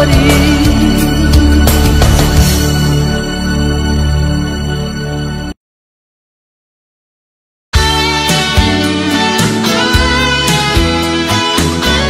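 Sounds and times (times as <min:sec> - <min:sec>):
bass: 0:00.0 - 0:05.6, 0:07.8 - 0:12.0
drum hits: 0:01.6 - 0:02.9.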